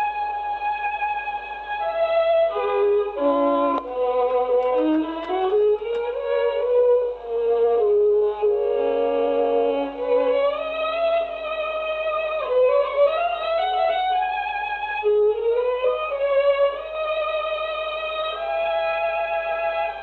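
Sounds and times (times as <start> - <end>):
slow solo violin melody: 0.0 - 20.0.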